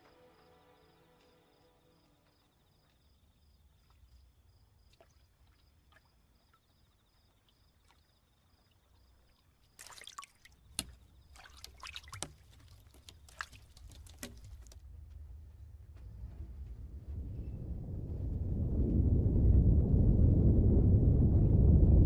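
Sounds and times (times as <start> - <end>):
crickets chirping: 0.0 - 12.2
low earthquake rumble: 14.7 - 22.0.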